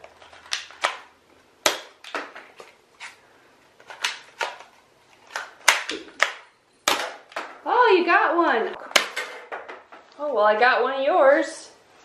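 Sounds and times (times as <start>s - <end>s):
sharp plastic clacks: 3.8s - 7.5s.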